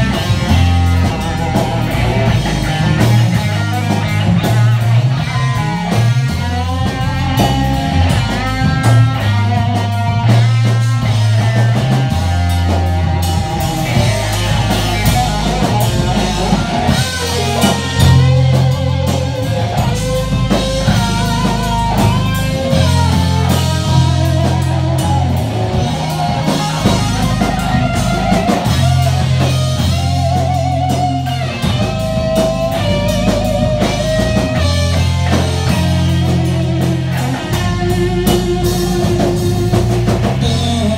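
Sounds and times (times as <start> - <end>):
drums: 0.0 - 40.9
electric guitar lead: 0.0 - 40.9
sustained low bass: 0.0 - 40.9.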